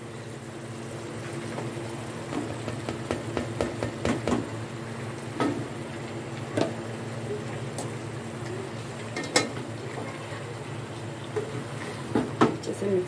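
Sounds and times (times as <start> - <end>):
wooden spoon knocking on pot: 2.3 - 4.5.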